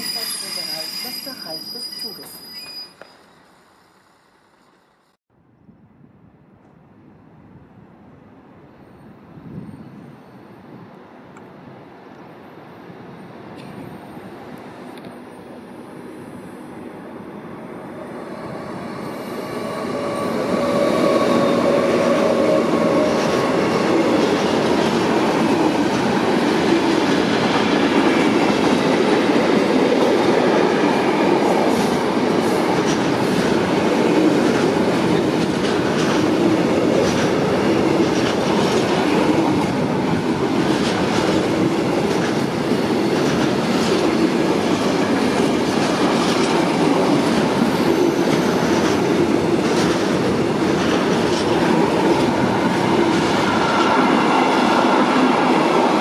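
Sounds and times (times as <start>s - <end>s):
train wheels rumbling on rail: 13.2s - 56.0s
clickety-clack over rail joints: 31.4s - 55.9s.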